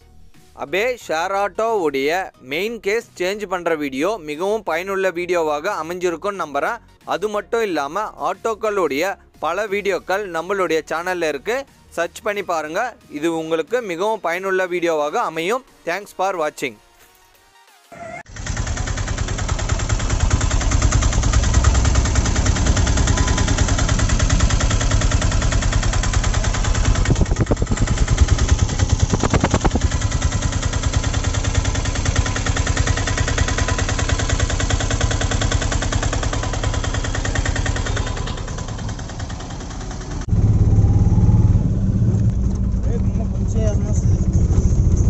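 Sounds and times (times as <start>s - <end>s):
diesel engine running: 18.3s - 45.0s.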